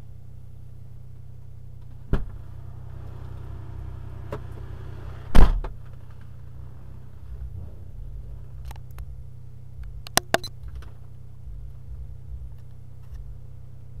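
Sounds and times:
car engine idling: 0.0s - 14.0s
sharp clicks: 9.8s - 10.6s.

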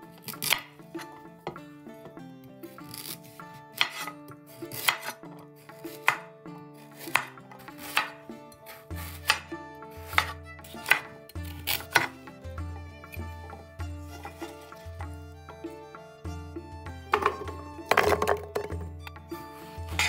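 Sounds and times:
background music with bass line: 0.0s - 20.0s
knife chopping carrot on stone board: 0.0s - 20.0s.

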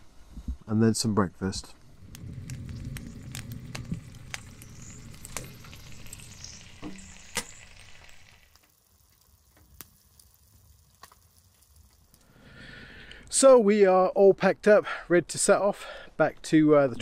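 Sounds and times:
food sizzling in a pan: 1.8s - 12.2s.

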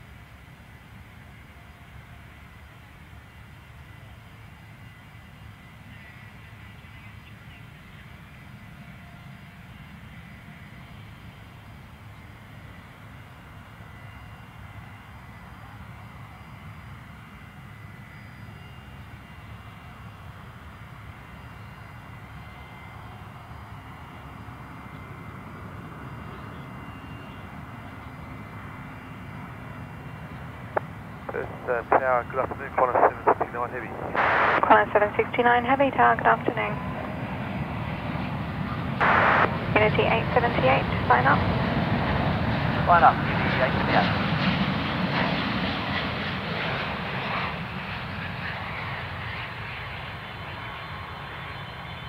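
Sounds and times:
distant jet engines rumbling: 19.0s - 52.0s.

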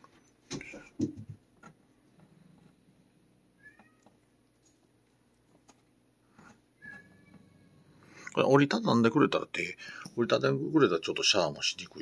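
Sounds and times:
cat meowing: 3.6s - 4.1s, 6.8s - 7.9s.

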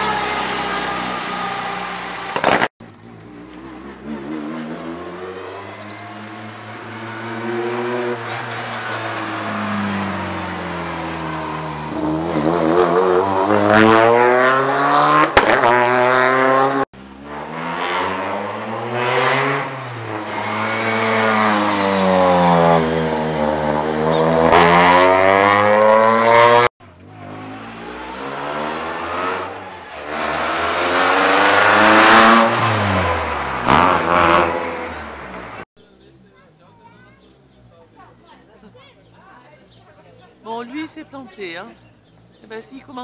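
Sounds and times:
rally cars passing at speed: 0.0s - 35.6s
sharp crack: 2.3s - 2.7s.

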